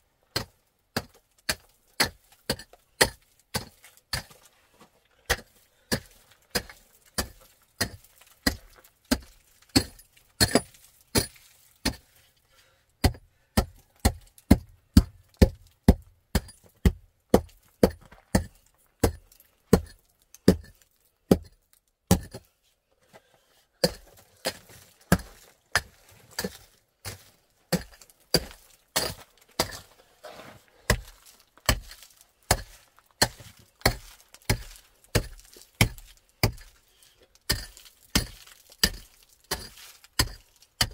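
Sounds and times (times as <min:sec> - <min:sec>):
pick striking gravelly dirt: 0:23.8 - 0:36.8, 0:37.4 - 0:40.9.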